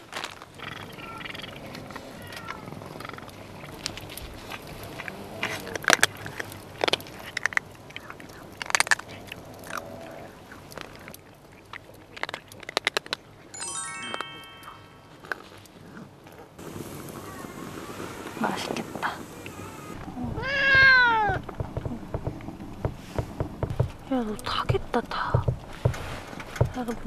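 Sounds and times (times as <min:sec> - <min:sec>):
cat meowing softly: 0:00.6 - 0:03.2, 0:19.4 - 0:21.4
chime-like notes: 0:13.6 - 0:15.4.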